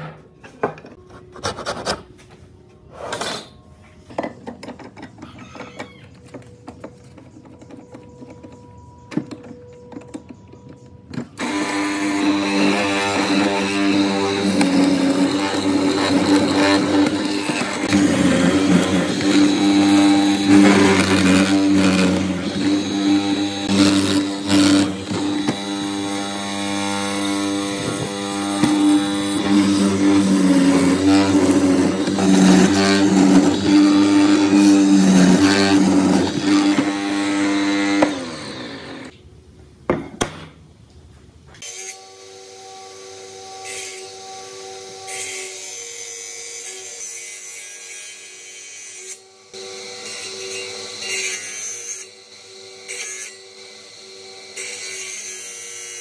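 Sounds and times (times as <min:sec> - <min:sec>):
circular saw blade humming: 0:11.4 - 0:39.1
mortiser boring into timber: 0:11.4 - 0:39.1.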